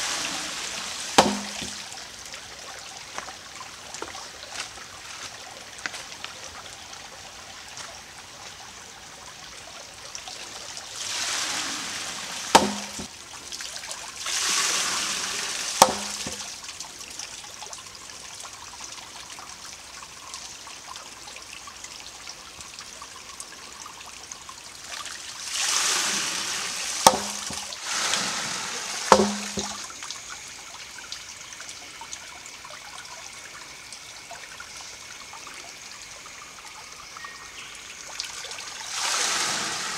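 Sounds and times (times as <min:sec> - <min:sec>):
trickling stream: 0:00.0 - 0:39.9
water spilling with a rush: 0:00.0 - 0:39.9
wooden hammer knocking on stone: 0:01.2 - 0:01.8, 0:27.1 - 0:27.6, 0:29.1 - 0:29.8.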